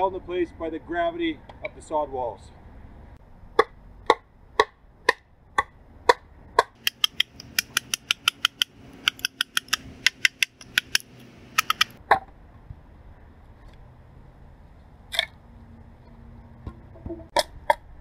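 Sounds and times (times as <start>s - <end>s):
hatchet chopping wood: 3.6s - 5.2s, 6.1s - 12.0s.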